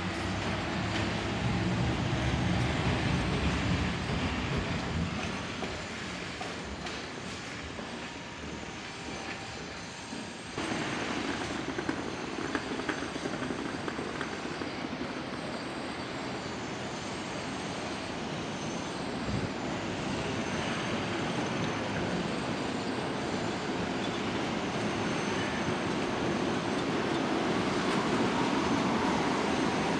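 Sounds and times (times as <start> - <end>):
tram rumbling on track: 0.0 - 29.9.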